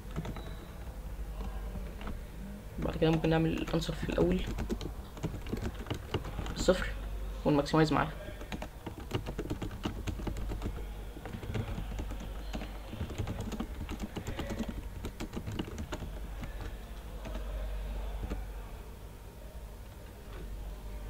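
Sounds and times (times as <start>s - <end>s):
typing on a keyboard: 0.0s - 2.2s, 2.8s - 6.9s, 8.3s - 18.4s.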